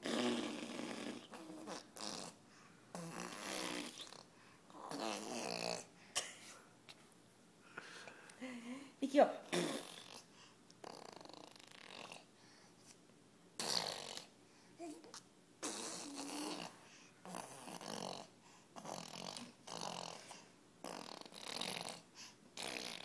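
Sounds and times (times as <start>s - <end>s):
toddler blowing raspberries: 13.6s - 18.1s.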